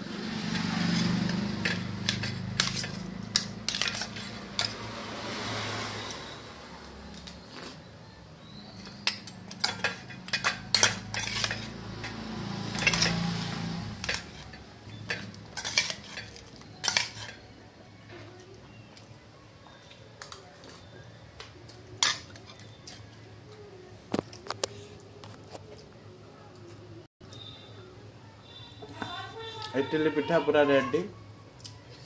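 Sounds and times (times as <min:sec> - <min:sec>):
spoon and ladle clinking on steel plates: 0:01.0 - 0:04.9, 0:08.7 - 0:17.6, 0:22.0 - 0:23.1.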